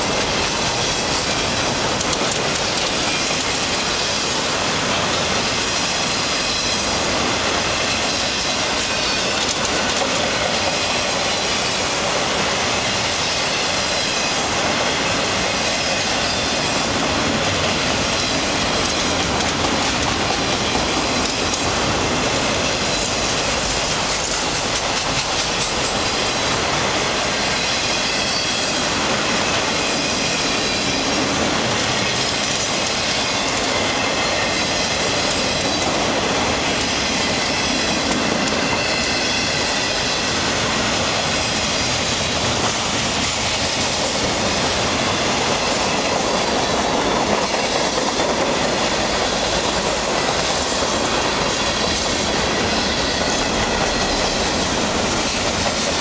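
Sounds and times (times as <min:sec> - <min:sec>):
clacks over rail joints: 0:00.0 - 0:03.9, 0:07.9 - 0:11.2, 0:17.3 - 0:21.8, 0:22.7 - 0:26.2
train wheels rumbling on rails: 0:00.0 - 0:56.0.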